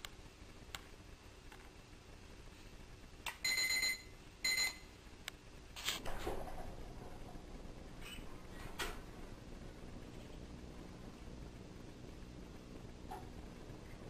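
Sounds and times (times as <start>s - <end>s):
high-pitched alarm beeps: 3.4s - 4.8s.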